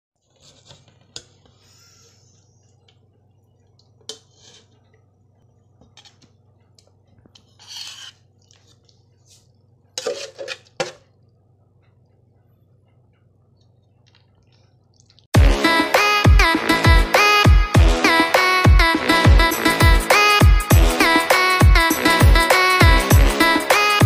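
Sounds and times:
faint low hum: 0.2s - 15.3s
metal utensil scraping a pot: 4.0s - 5.0s, 7.4s - 8.3s, 10.0s - 11.0s.

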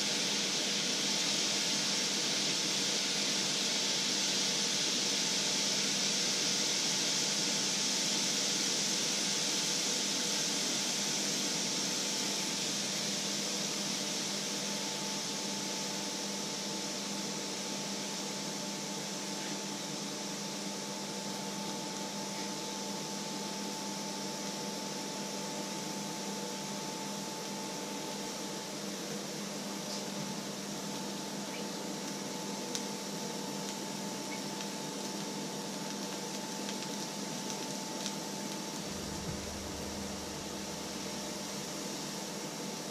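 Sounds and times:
liquid sizzling in a hot pan: 0.0s - 42.9s
steady hum: 37.6s - 42.9s.

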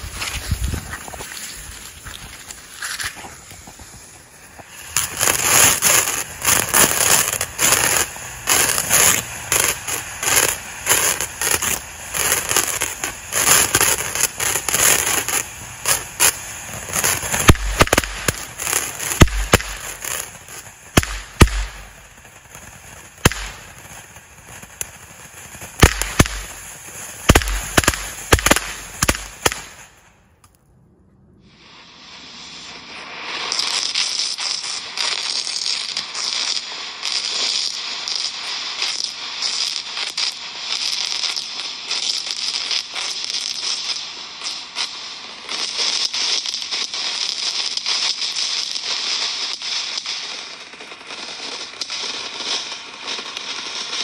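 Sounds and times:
hiss of sparks spraying: 0.0s - 29.9s, 31.4s - 54.0s
firework cracks and pops: 0.0s - 30.6s, 31.5s - 54.0s.

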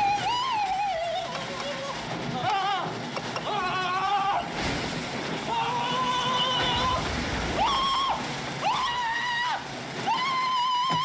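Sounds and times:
rushing noise: 1.9s - 10.7s.

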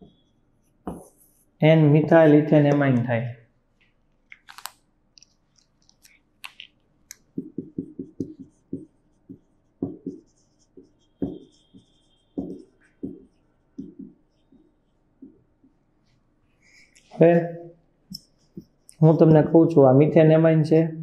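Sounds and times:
marker writing on a whiteboard: 0.0s - 2.5s, 5.2s - 20.2s
marker squeak: 9.3s - 15.0s.

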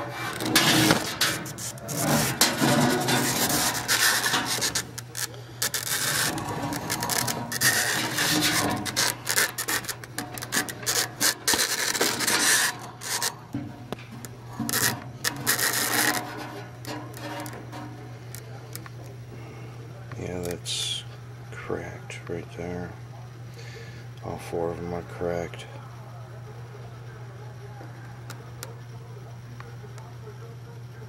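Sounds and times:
cable scraping inside metal tubes: 0.0s - 18.6s
steady low hum: 0.0s - 31.0s.

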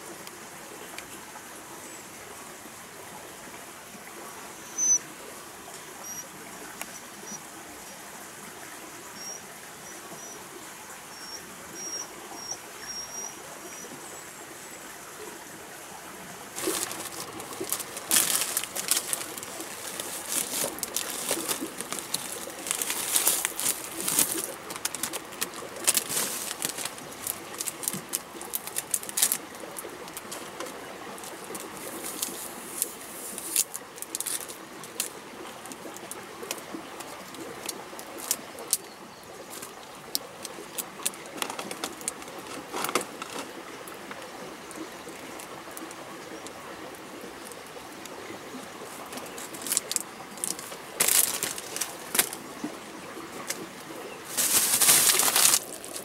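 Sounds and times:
plastic bag rustling: 16.6s - 35.1s, 40.7s - 43.6s, 49.1s - 52.4s, 54.2s - 56.0s
plastic wrappers crinkling: 16.6s - 35.1s, 40.7s - 43.5s, 49.1s - 52.4s, 54.3s - 56.0s.

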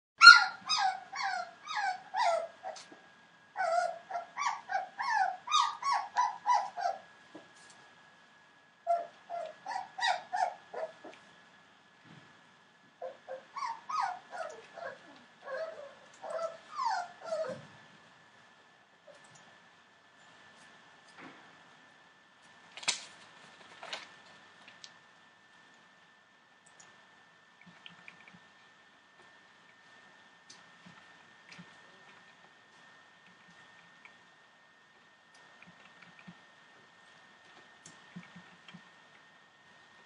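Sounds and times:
puppies whining and yelping: 0.2s - 7.1s, 8.9s - 11.2s, 13.0s - 17.8s.

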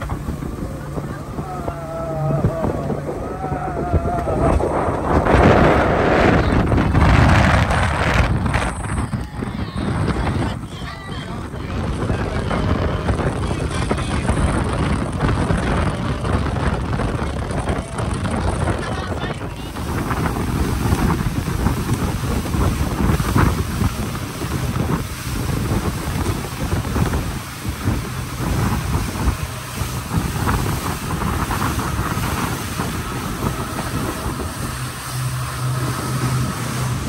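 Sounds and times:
rushing water and spray: 0.0s - 37.0s
speedboat engine: 0.0s - 37.0s
wind buffeting microphone: 0.0s - 37.0s.

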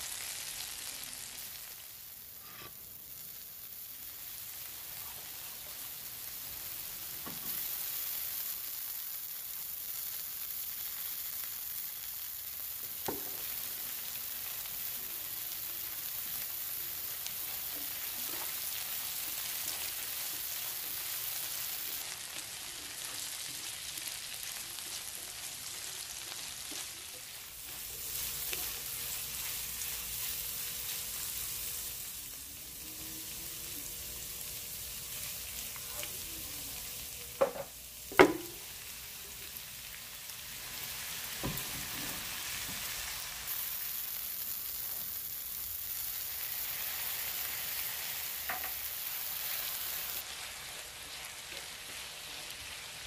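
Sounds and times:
vegetables sizzling in hot oil: 0.0s - 53.0s
spatula stirring in a pan: 16.9s - 32.3s.

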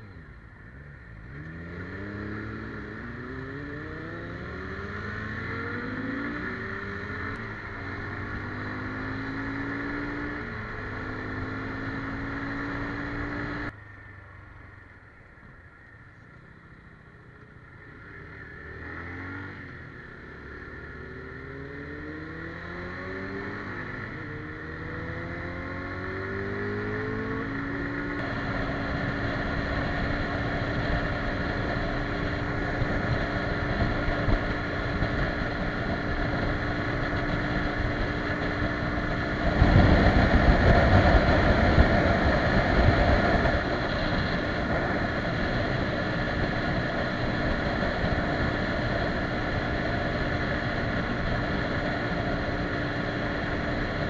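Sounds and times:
motorcycle engine accelerating: 0.0s - 54.0s
wind on microphone: 32.0s - 52.6s.

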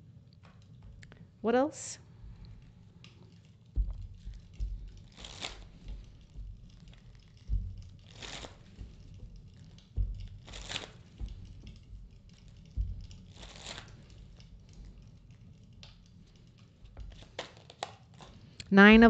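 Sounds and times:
low thumps: 2.1s - 17.2s, 18.7s - 19.0s
cards being shuffled: 5.0s - 6.2s, 8.0s - 9.1s, 10.4s - 11.5s, 13.2s - 14.1s, 17.0s - 18.6s.

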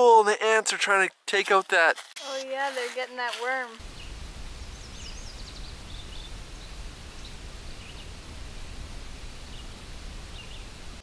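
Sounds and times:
low rumble: 3.8s - 11.0s
small birds chirping: 3.8s - 11.0s.

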